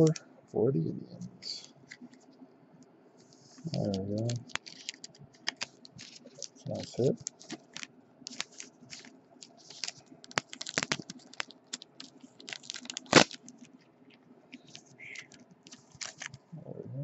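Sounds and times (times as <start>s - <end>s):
crinkly plastic scrapes: 3.4s - 13.8s, 14.5s - 16.5s.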